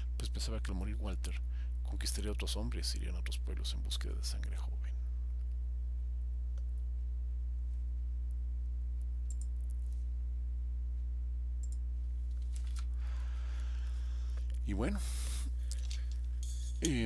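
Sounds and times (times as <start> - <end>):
low electrical hum: 0.0 - 17.0
faint clicks: 9.2 - 9.8, 11.6 - 11.8.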